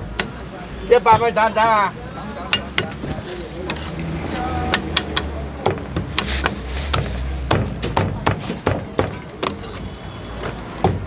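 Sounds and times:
cleaver chopping on wooden block: 0:04.6 - 0:09.6.

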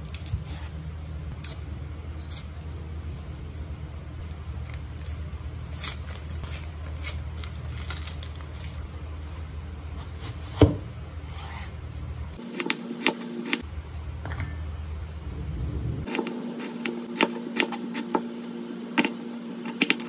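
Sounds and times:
onion skin crackling: 0:00.0 - 0:09.4
steady low hum: 0:00.0 - 0:20.0
knife on wooden cutting board: 0:19.0 - 0:20.0.

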